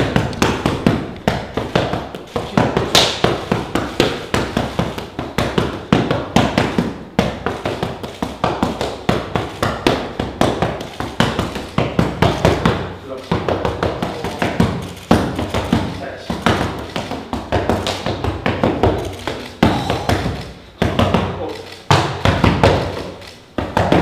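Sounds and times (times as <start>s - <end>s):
gloved punches on mitts: 0.0s - 24.0s.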